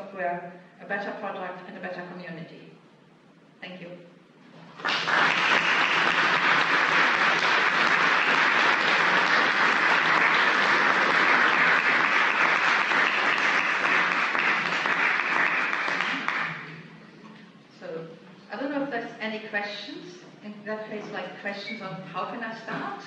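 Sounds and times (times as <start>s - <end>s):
audience applauding: 4.7s - 16.7s.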